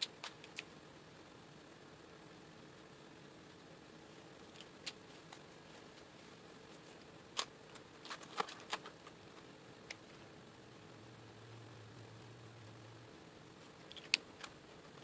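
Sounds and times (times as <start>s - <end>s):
plastic marker caps clicking: 13.9s - 14.6s.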